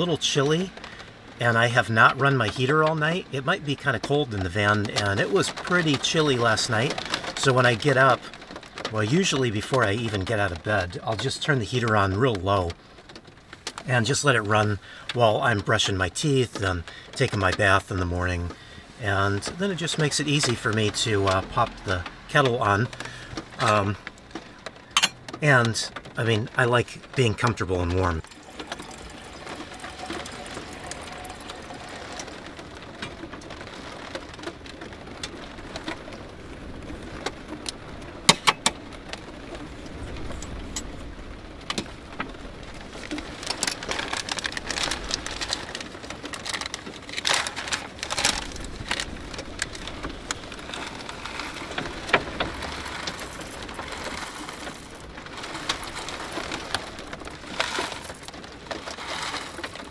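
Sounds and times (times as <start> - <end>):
sharp clicks and knocks: 19.4 - 36.1, 37.2 - 39.2
coffee bag crinkling: 26.6 - 33.4, 42.8 - 59.9.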